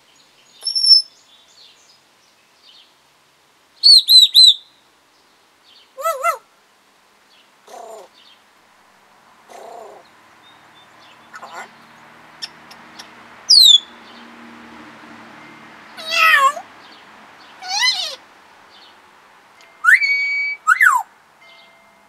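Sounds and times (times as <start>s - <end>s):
parrot whistling and calling: 0.6s - 1.1s, 3.8s - 4.6s, 12.4s - 13.9s, 16.0s - 16.6s, 17.6s - 18.2s, 19.8s - 21.1s.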